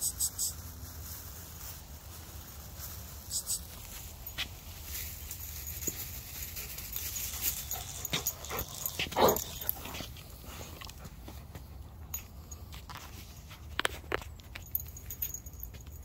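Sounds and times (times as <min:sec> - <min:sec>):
light clicks and rustles: 0:01.0 - 0:16.0
dog vocalising: 0:07.7 - 0:10.0.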